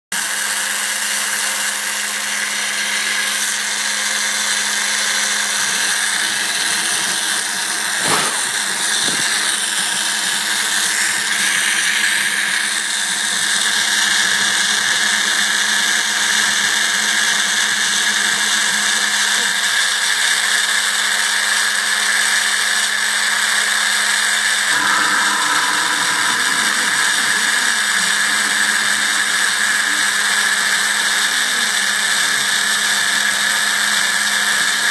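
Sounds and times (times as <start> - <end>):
sharp knock: 8.0 - 8.5
router spindle engraving wood: 24.7 - 34.5.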